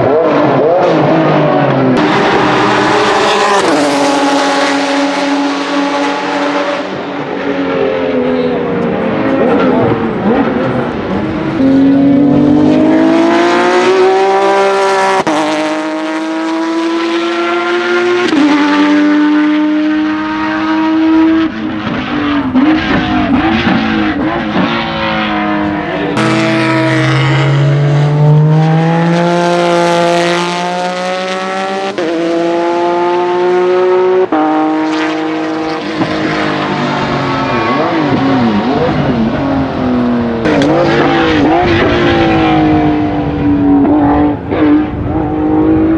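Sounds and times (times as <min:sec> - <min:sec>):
race car engine at full throttle: 0:00.0 - 0:45.9.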